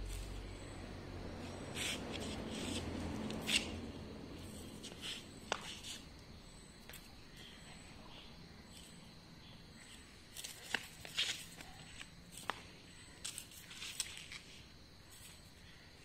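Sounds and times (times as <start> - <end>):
flip-flop footsteps on tiles: 4.7 - 6.0, 9.8 - 14.6.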